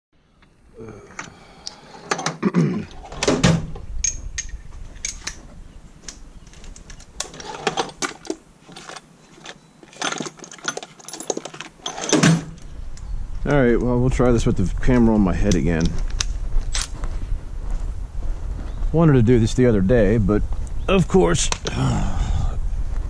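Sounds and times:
metal sockets clinking: 3.0 - 5.4, 6.5 - 12.7.

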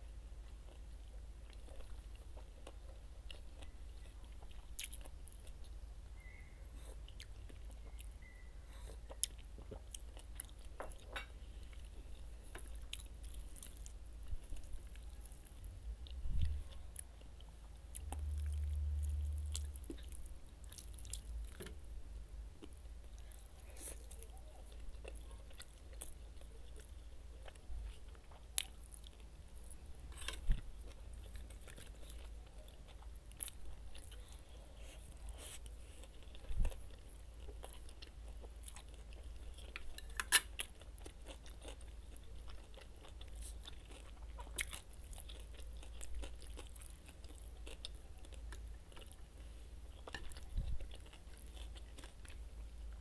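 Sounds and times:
faint low hum: 0.0 - 53.0
chewing and biting food: 0.5 - 5.8, 6.8 - 21.8, 22.6 - 53.0
dull low rumble: 18.0 - 20.3.

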